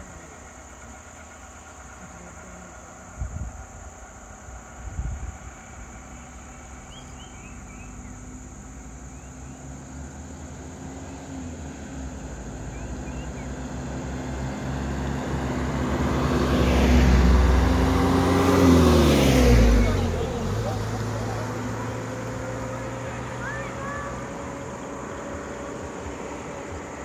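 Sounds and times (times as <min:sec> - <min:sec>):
van passing close by: 0:00.0 - 0:27.0
vehicle engines running: 0:00.0 - 0:27.0
faint bird chirps: 0:06.1 - 0:08.4, 0:12.6 - 0:13.6.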